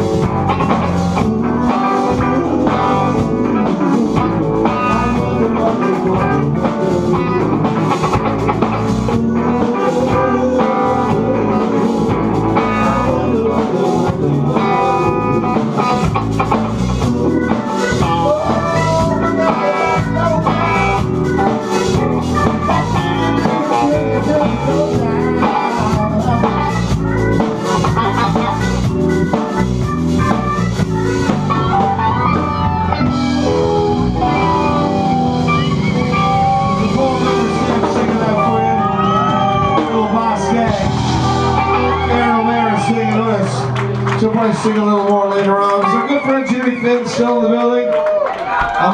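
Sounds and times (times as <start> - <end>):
drum kit: 0.0 - 47.6
bass guitar: 0.0 - 48.9
electric guitars: 0.0 - 48.9.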